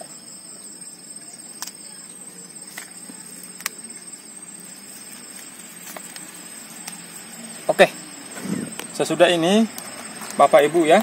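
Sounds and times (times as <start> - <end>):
crickets trilling: 0.0 - 11.0
hands handling plant pot and soil: 4.8 - 7.1.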